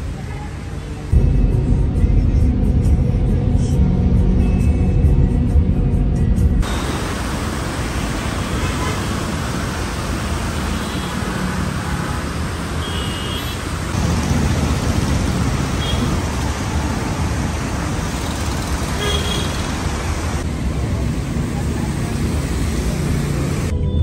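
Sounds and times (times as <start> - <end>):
road traffic on wet roads: 0.0 - 1.3, 6.6 - 24.0.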